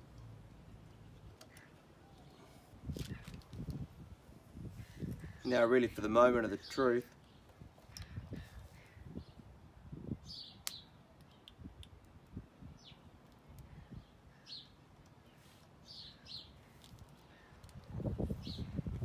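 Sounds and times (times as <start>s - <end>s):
bird chirping: 10.2s - 11.5s, 13.8s - 18.8s.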